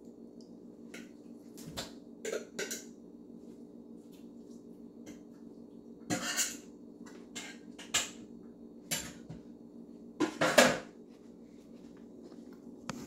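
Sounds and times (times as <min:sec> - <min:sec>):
dishes and cutlery clattering: 0:06.1 - 0:08.2.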